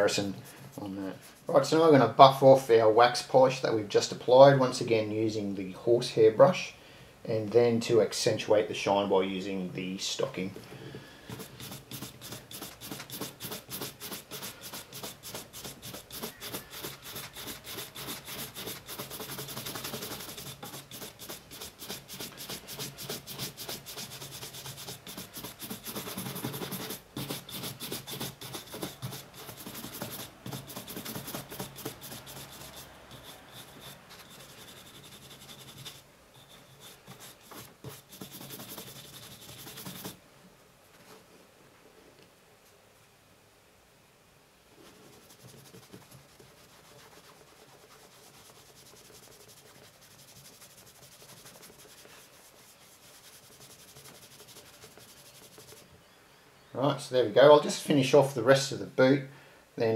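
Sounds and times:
shoe brush swishing on leather boot: 0:11.4 - 0:36.0.

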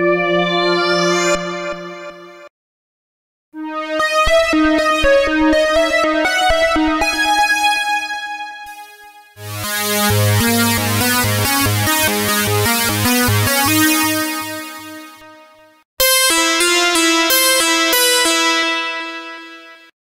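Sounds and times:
synthesizer lead melody: 0:00.0 - 0:02.5, 0:03.6 - 0:19.9
pulsing synth bass note: 0:09.4 - 0:13.8.

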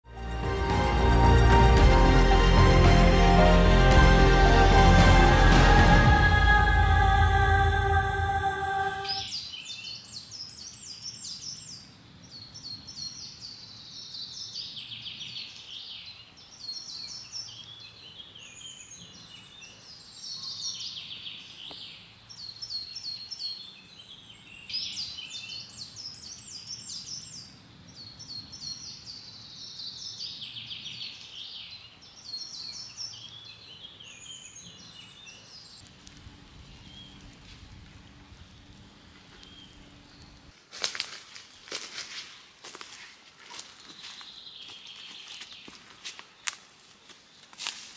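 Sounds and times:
songbirds singing: 0:09.1 - 0:42.0, 0:43.4 - 0:47.8
faint low hum: 0:35.8 - 0:40.6.

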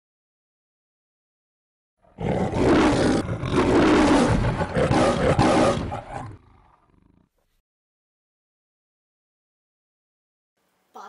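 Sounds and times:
person roaring like a lion: 0:02.0 - 0:07.3.

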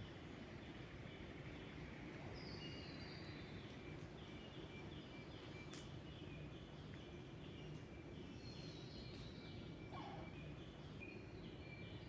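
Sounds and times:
low background noise: 0:00.0 - 0:12.0
faint bird calls: 0:09.8 - 0:10.8.

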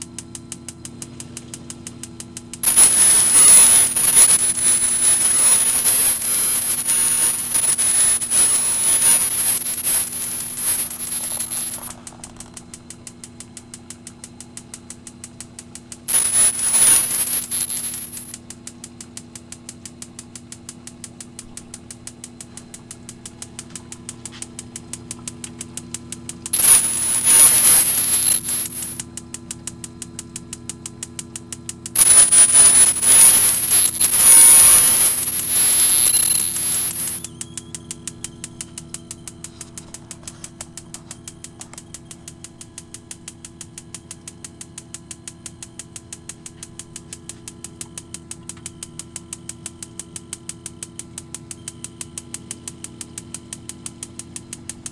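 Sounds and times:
steady hum: 0:00.0 - 0:18.4, 0:21.0 - 0:29.3, 0:30.9 - 0:49.8
loud hissing with wavering whine: 0:02.6 - 0:12.0, 0:16.1 - 0:18.4, 0:26.6 - 0:29.0, 0:32.0 - 0:37.4.

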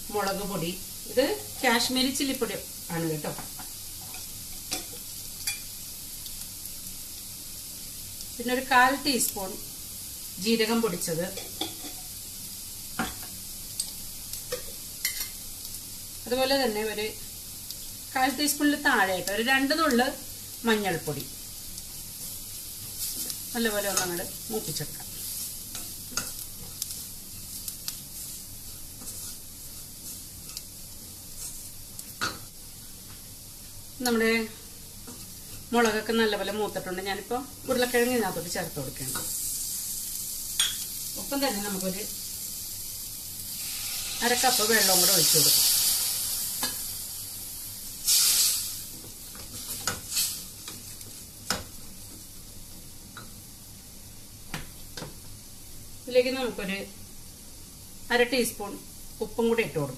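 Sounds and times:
spices sizzling in hot oil: 0:00.0 - 0:59.9
spatula scraping and tapping pan: 0:13.0 - 0:15.4, 0:25.0 - 0:30.7, 0:48.9 - 0:51.7.

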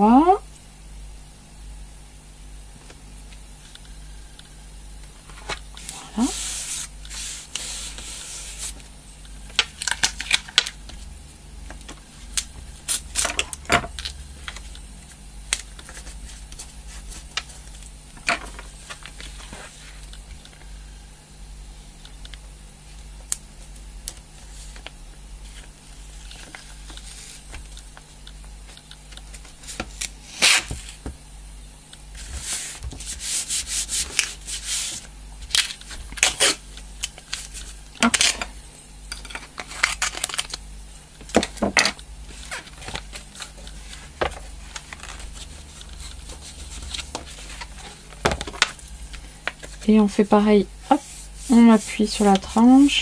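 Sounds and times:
hands rubbing tape on cardboard: 0:05.8 - 0:08.8, 0:32.2 - 0:35.0, 0:50.8 - 0:52.9.

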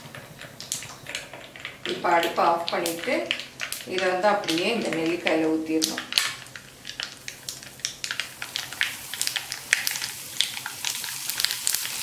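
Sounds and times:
hot oil sizzling: 0:00.0 - 0:12.0
mustard seeds popping in oil: 0:00.0 - 0:12.0.

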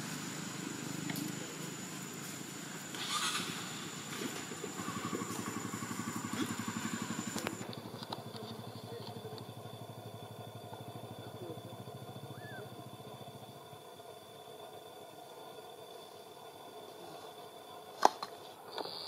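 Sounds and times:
thin high whine: 0:00.0 - 0:13.6
small engine running: 0:00.0 - 0:14.7.

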